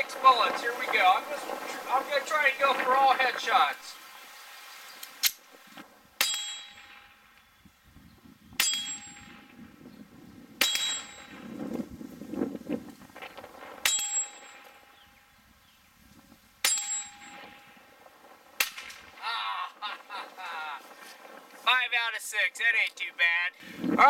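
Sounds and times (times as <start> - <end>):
steel target ringing: 6.2 - 7.3, 8.6 - 9.6, 10.6 - 11.5, 13.8 - 15.1, 16.6 - 17.9.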